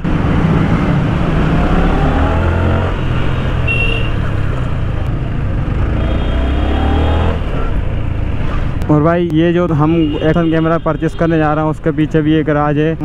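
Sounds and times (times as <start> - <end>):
motorcycle engine revving: 0.0 - 8.8
short high horn beep: 3.7 - 4.2.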